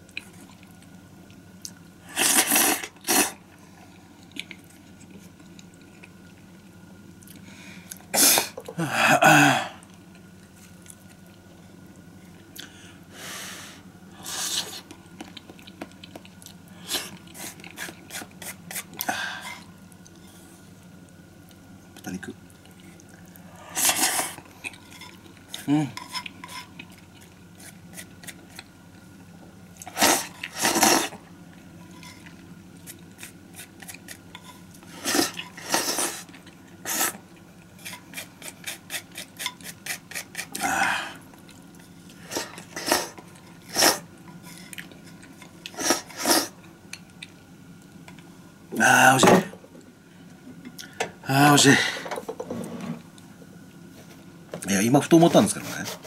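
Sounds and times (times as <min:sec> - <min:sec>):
slurping noodles: 0:02.1 - 0:03.4, 0:23.7 - 0:24.4, 0:29.8 - 0:31.2, 0:34.9 - 0:37.2, 0:42.2 - 0:44.1, 0:45.7 - 0:46.6
chewing: 0:03.0 - 0:08.7, 0:14.7 - 0:19.1, 0:21.5 - 0:29.2, 0:41.3 - 0:45.8.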